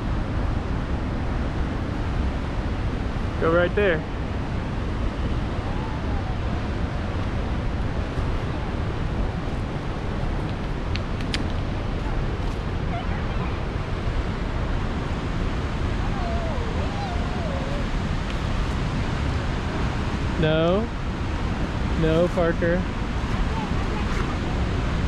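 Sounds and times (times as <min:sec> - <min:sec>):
fast river water: 0:00.0 - 0:25.0
waterfall rushing: 0:04.0 - 0:10.3, 0:11.2 - 0:25.0.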